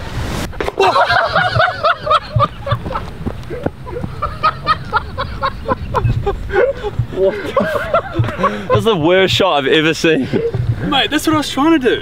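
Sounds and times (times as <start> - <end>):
men laughing: 0.6 - 11.4
men whooping and shouting: 2.9 - 4.8.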